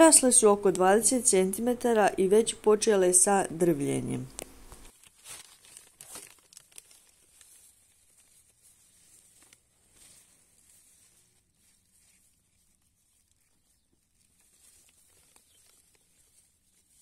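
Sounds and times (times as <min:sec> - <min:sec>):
leaves rustling against microphone: 0:00.0 - 0:17.0.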